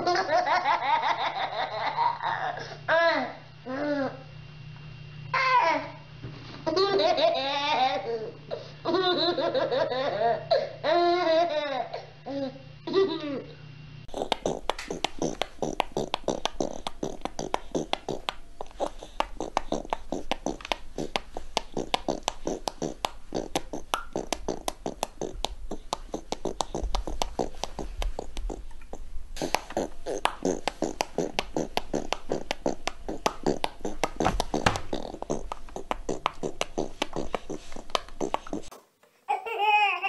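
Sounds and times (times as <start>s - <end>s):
baby lip-popping and smacking: 14.1s - 38.8s.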